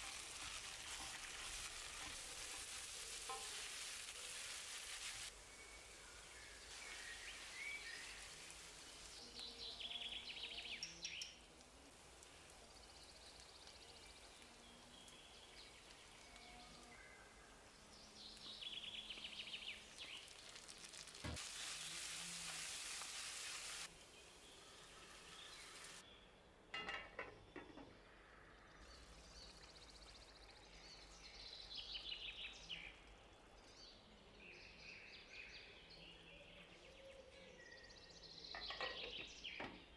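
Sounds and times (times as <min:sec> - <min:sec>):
wooden spatula scraping a pan: 0:00.0 - 0:05.3
food sizzling in a pan: 0:00.0 - 0:26.0.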